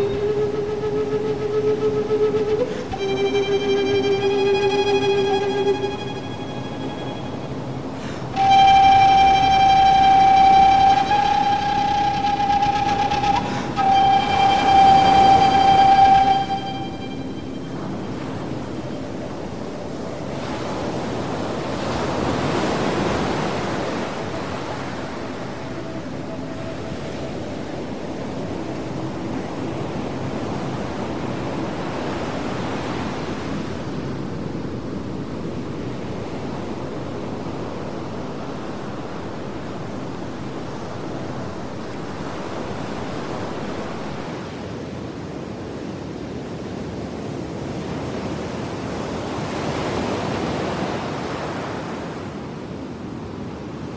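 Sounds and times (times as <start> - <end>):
faint held tones: 0.0 - 21.4.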